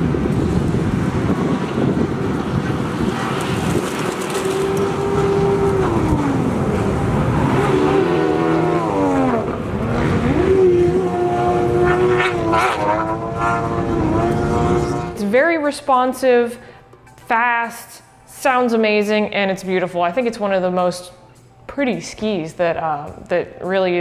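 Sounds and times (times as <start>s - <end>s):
jet ski engines revving: 0.0s - 15.2s.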